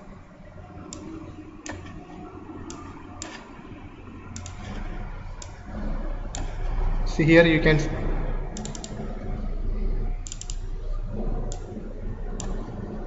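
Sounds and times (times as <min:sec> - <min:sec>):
faint low hum: 0:00.0 - 0:13.0
computer mouse clicking: 0:00.7 - 0:05.6, 0:06.3 - 0:06.7, 0:08.5 - 0:09.2, 0:10.2 - 0:12.9.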